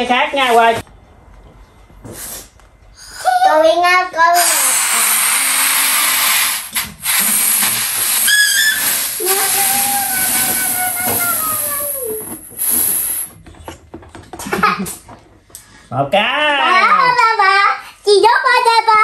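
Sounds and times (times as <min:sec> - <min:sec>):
helium hissing into balloon: 0:04.3 - 0:13.4.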